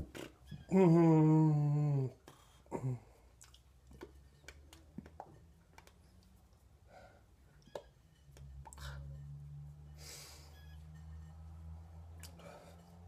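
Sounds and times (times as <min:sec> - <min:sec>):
man grunting: 0:00.7 - 0:03.0.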